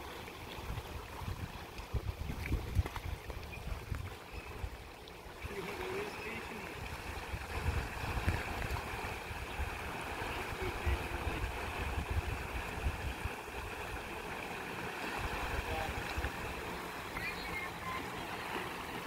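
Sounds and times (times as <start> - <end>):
water rushing and churning: 0.0 - 19.0
wind rumble on microphone: 0.6 - 4.8, 6.8 - 14.0.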